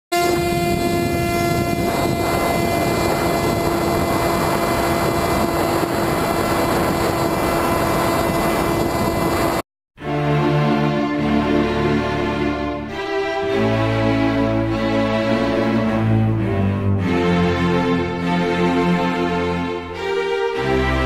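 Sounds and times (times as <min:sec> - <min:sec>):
electric motor and propeller: 0:00.1 - 0:09.6
wind rushing over microphone: 0:00.1 - 0:09.6
music: 0:10.0 - 0:21.0.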